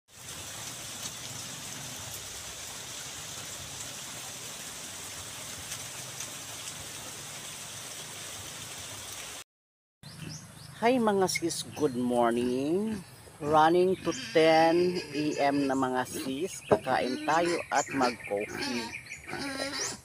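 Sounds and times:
rain falling on grass and leaves: 0:00.1 - 0:09.4.

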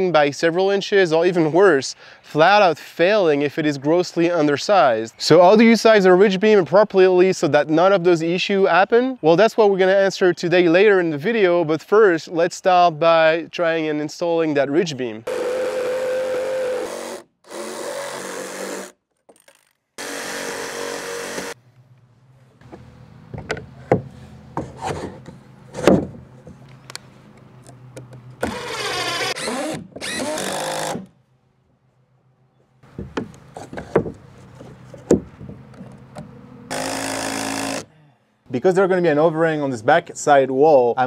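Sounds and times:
cordless power tool running: 0:15.3 - 0:18.9, 0:20.0 - 0:21.6, 0:28.4 - 0:31.0, 0:36.7 - 0:37.9
wood knocks and taps: 0:33.0 - 0:36.3.

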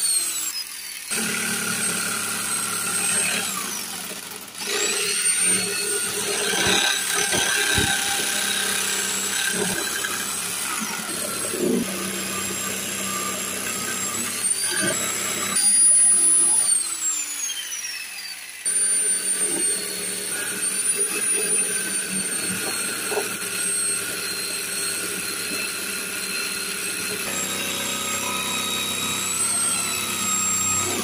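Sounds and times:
electric jigsaw cutting wood: 0:00.0 - 0:31.0.

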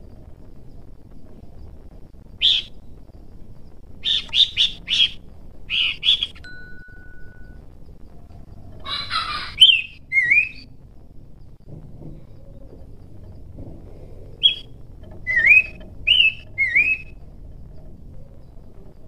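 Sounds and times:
harsh churring bird call: 0:02.4 - 0:02.7, 0:04.0 - 0:06.4, 0:08.8 - 0:10.7, 0:14.4 - 0:17.2
bird calling sharp notes: 0:02.4 - 0:02.8, 0:04.0 - 0:06.5, 0:08.8 - 0:10.7, 0:14.4 - 0:17.2.

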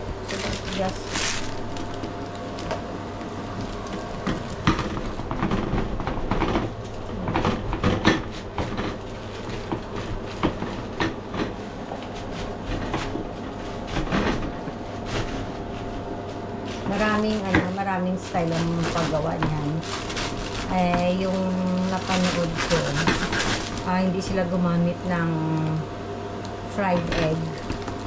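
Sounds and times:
bread knife sawing crusty loaf: 0:21.9 - 0:23.8.

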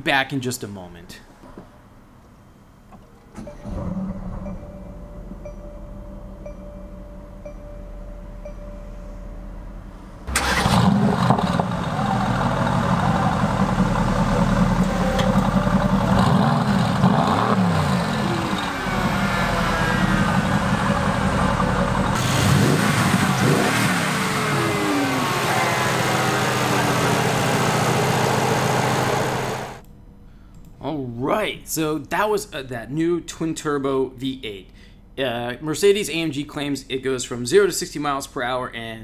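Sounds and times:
car engine starting and revving: 0:03.5 - 0:05.4, 0:10.2 - 0:29.8.

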